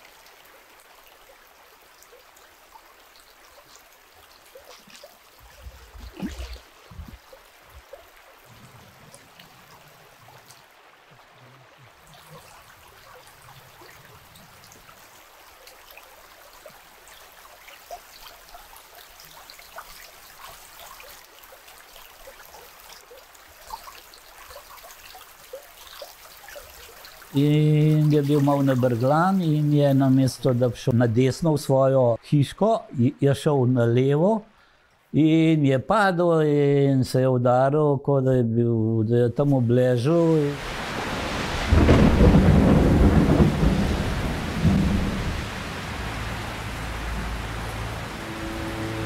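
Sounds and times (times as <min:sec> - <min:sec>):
river trickling: 0:00.0 - 0:31.4, 0:39.8 - 0:49.0
low thumps: 0:05.4 - 0:07.9, 0:41.7 - 0:49.0.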